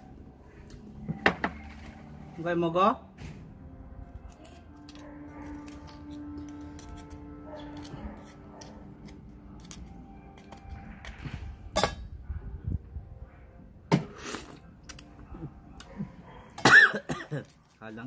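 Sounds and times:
knife scraping oyster shell: 4.3s - 11.2s.

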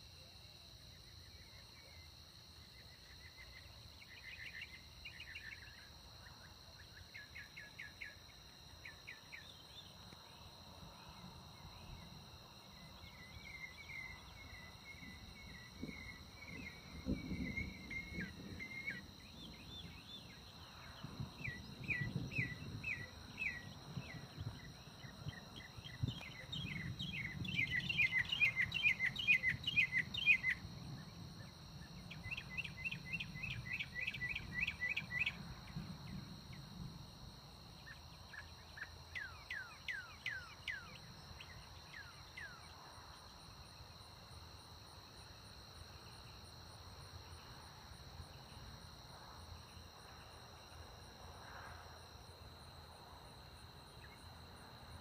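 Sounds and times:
crickets trilling: 0.0s - 55.0s
bird singing: 11.7s - 30.7s, 31.8s - 35.8s, 37.8s - 42.7s
distant thunder rumble: 15.0s - 28.4s.

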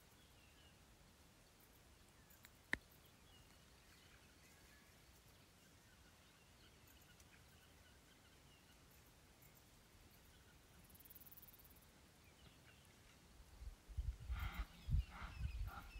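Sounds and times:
faint bird calls: 14.0s - 15.9s.

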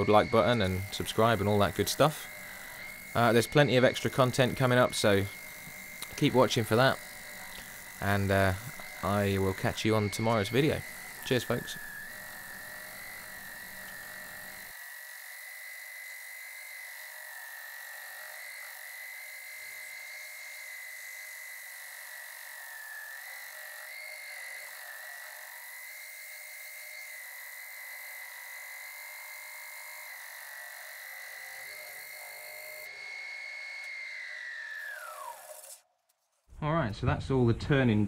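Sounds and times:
sanding hiss: 0.0s - 14.7s
wood lathe sanding whine: 0.0s - 35.8s.

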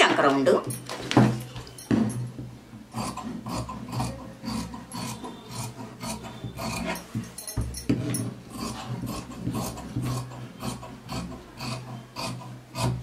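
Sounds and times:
scissors snipping cloth: 8.5s - 13.0s.

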